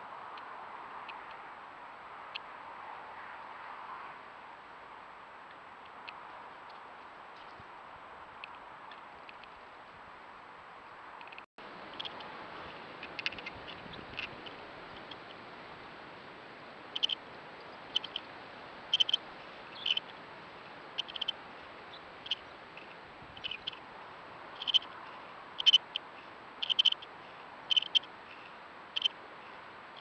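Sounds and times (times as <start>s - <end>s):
faint steady hiss: 0.0s - 30.0s.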